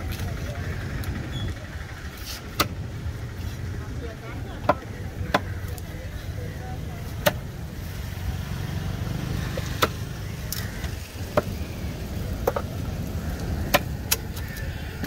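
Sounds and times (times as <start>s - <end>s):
cleaver chopping on wooden block: 4.6s - 5.8s, 7.1s - 7.4s, 9.6s - 10.0s, 11.3s - 11.6s, 12.4s - 12.7s, 13.6s - 14.2s.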